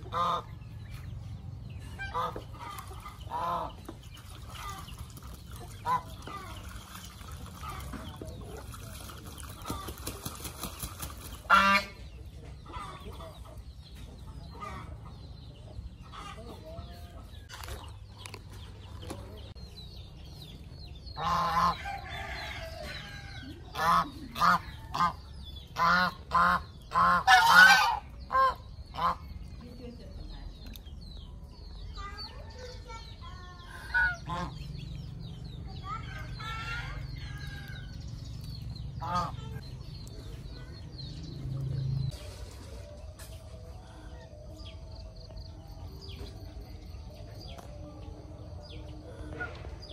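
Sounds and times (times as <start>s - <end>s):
geese honking: 0.0s - 0.5s, 11.4s - 12.0s, 25.8s - 29.3s, 33.8s - 34.6s, 39.0s - 39.5s.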